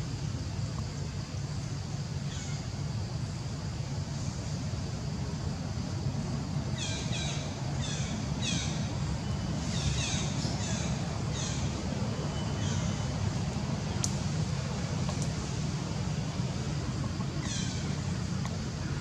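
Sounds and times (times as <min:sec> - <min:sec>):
birds calling: 0:06.8 - 0:13.2, 0:17.4 - 0:18.0.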